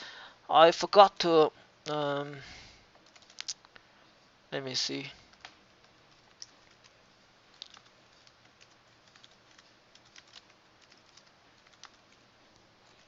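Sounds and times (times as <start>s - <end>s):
low steady hiss: 0.0s - 13.0s
keyboard typing: 3.0s - 3.6s, 6.1s - 13.0s.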